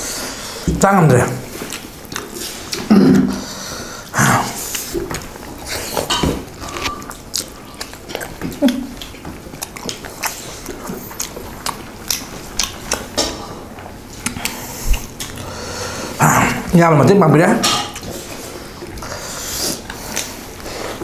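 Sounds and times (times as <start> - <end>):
people chewing: 1.4 - 21.0
mouth clicks and smacks: 4.2 - 13.4, 14.1 - 15.5.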